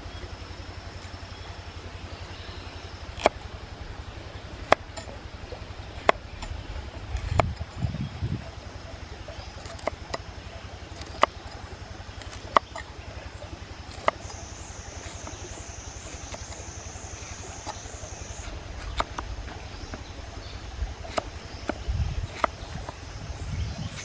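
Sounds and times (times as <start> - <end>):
knife cutting vegetables: 5.9 - 7.7, 9.5 - 10.2, 10.9 - 11.6, 12.2 - 12.9, 13.9 - 20.0, 20.9 - 23.0.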